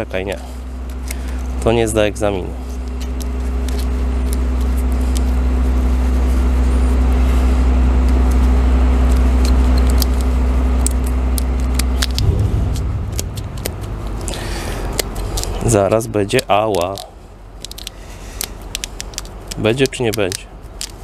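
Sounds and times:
engine rumbling: 12.1s - 19.5s
light clicks and rattles: 16.6s - 21.0s.

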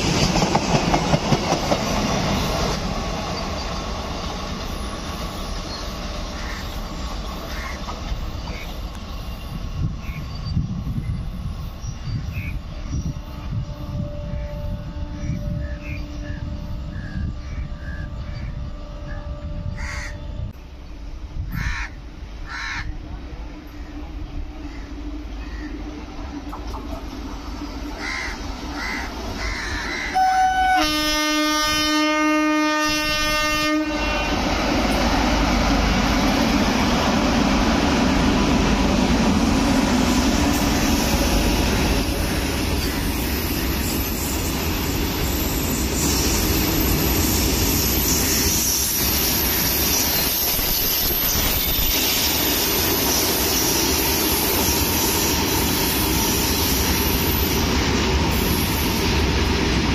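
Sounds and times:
locomotive horn blasts: 13.0s - 17.3s, 30.1s - 34.6s.

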